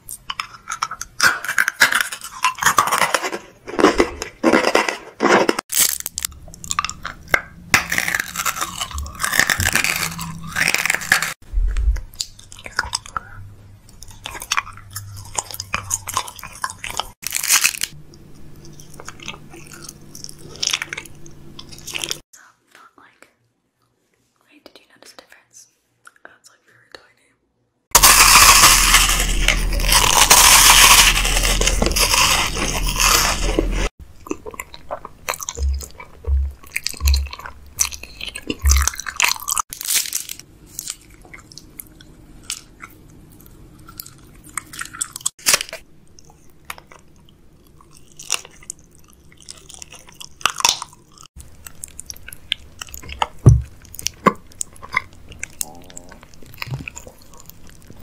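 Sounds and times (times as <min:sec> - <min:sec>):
crisp bites and crunches: 0:00.8 - 0:13.2, 0:14.0 - 0:18.0, 0:27.9 - 0:43.0, 0:43.9 - 0:47.0
wet chewing: 0:05.7 - 0:22.2, 0:27.9 - 0:58.0
loud dense crackling: 0:27.9 - 0:33.9.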